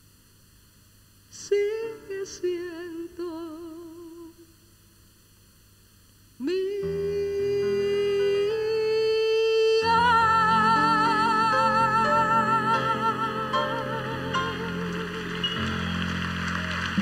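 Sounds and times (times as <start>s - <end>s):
woman singing with vibrato: 1.3s - 4.5s, 6.4s - 15.7s.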